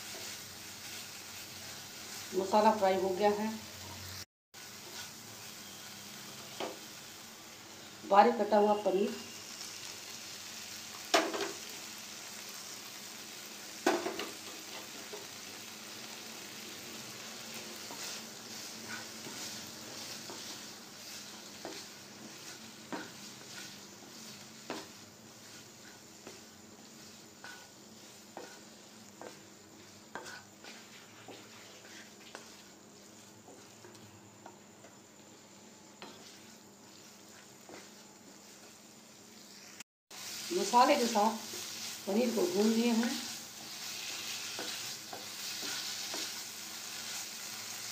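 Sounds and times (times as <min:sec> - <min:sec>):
wooden spatula scraping a pan: 0:00.0 - 0:05.9, 0:16.1 - 0:38.8, 0:40.2 - 0:47.9
food sizzling in a pan: 0:00.0 - 0:47.9.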